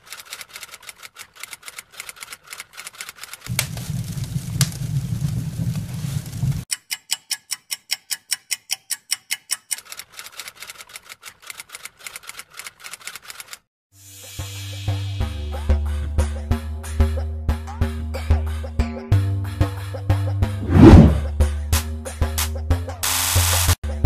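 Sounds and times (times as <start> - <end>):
low hum: 20.6 - 21.3.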